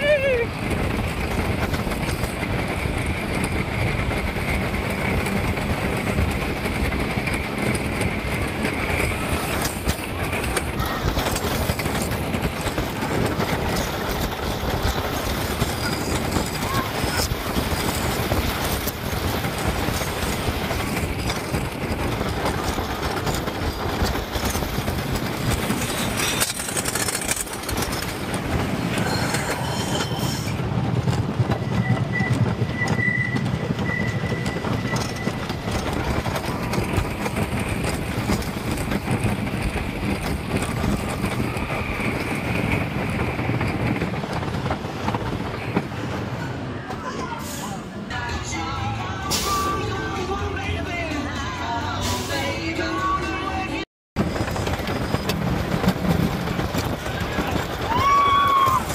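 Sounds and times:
roller coaster wheels clattering: 0.0s - 58.9s
wind rushing: 28.0s - 46.7s.

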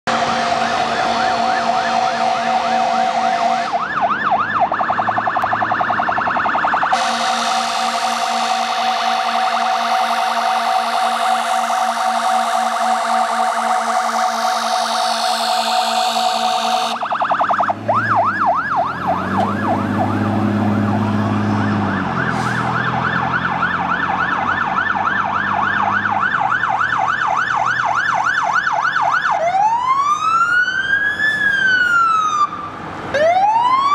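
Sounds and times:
fire engine horn blasts: 0.1s - 4.0s, 6.9s - 17.1s, 22.2s - 22.8s
siren yelping: 0.1s - 33.9s.

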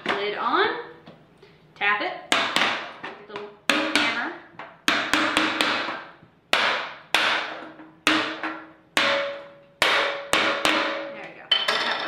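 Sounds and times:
hammer striking metal can lid: 6.6s - 11.1s.

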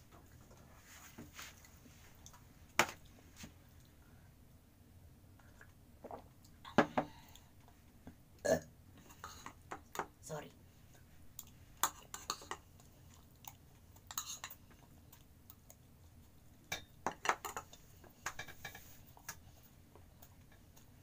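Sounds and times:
metal spoon clinking on ceramic bowls: 11.8s - 12.6s, 16.7s - 18.4s.

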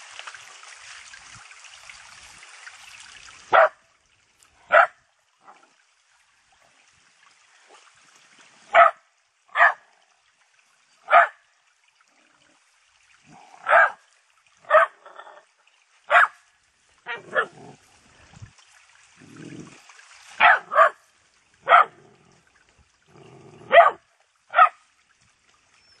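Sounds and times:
dog barking: 3.5s - 3.8s, 4.7s - 5.0s, 8.7s - 9.8s, 11.1s - 11.4s, 13.6s - 14.0s, 14.6s - 15.3s, 16.1s - 16.4s, 17.1s - 17.8s, 20.4s - 21.0s, 21.6s - 22.0s, 23.6s - 24.8s.

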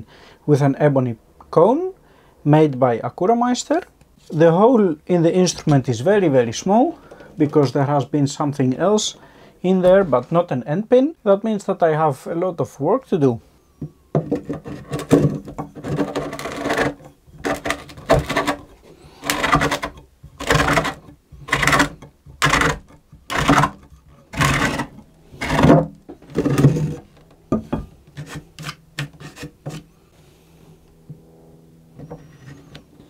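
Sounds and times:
hand reamer scraping wood: 14.2s - 27.3s, 28.1s - 29.9s, 32.0s - 32.8s.

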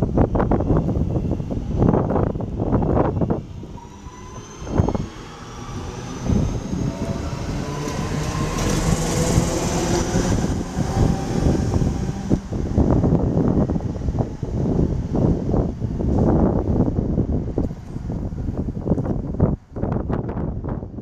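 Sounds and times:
wheels rumbling on rails: 0.0s - 21.0s
electric train motor whine: 0.4s - 16.6s.

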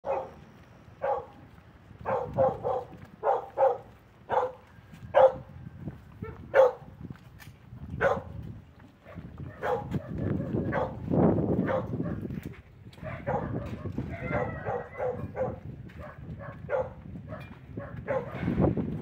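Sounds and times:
dog barking: 0.0s - 0.4s, 1.0s - 1.4s, 2.0s - 5.5s, 6.2s - 6.9s, 8.0s - 8.4s, 9.0s - 11.0s, 11.6s - 12.3s, 13.0s - 18.7s.

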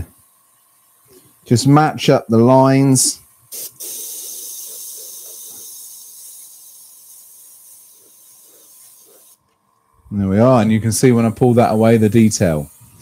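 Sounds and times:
airbrush spraying hiss: 2.8s - 9.4s, 10.2s - 13.0s
short puff of air: 3.5s - 5.8s.

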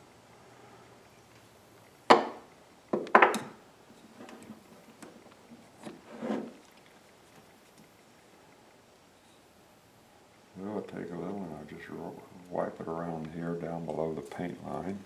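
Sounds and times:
wooden parts and tools knocking: 2.1s - 3.6s.

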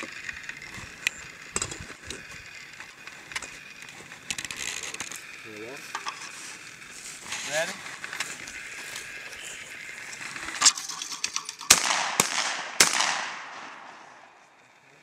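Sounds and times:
shotgun shots with echo: 11.6s - 14.3s.

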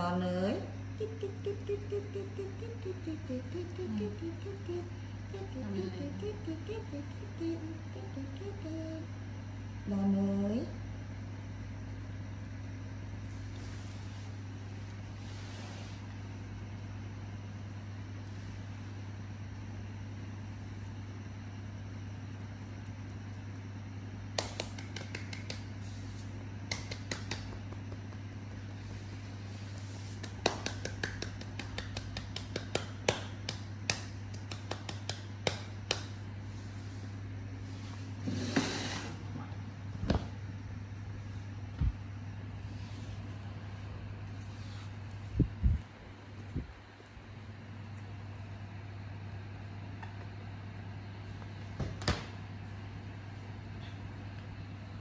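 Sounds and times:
low hum: 0.0s - 25.0s
steady low hum: 0.0s - 55.0s.

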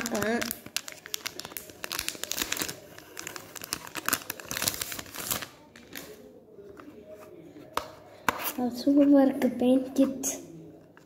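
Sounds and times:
plastic wrapping crinkling and tearing: 0.0s - 6.2s.

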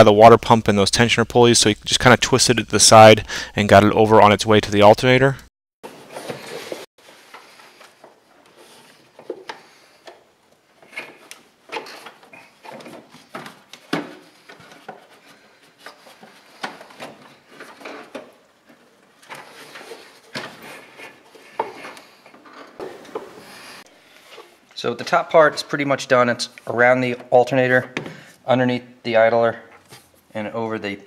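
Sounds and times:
rubber belt rubbing and scraping: 5.9s - 24.6s.

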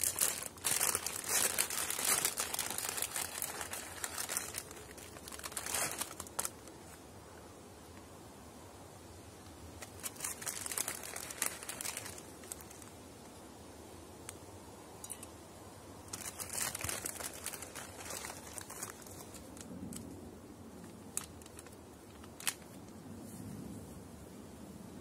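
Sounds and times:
plastic packaging crinkling: 0.0s - 7.0s, 9.8s - 12.9s, 16.1s - 20.1s, 20.8s - 22.9s.

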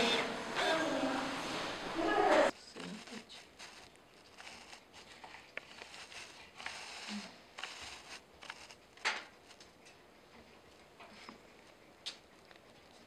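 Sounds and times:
knife scraping on cutting board: 2.8s - 9.7s.

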